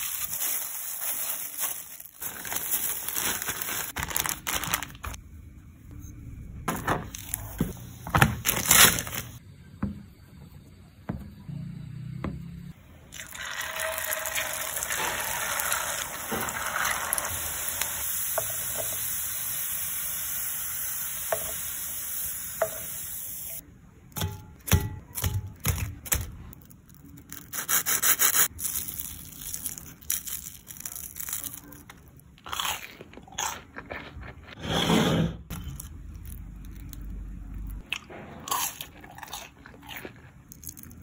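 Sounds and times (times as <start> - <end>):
potatoes sizzling in hot oil: 13.4 - 23.6.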